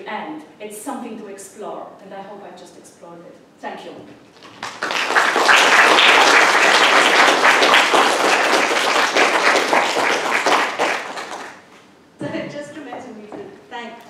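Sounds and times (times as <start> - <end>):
audience applauding: 4.4 - 11.7.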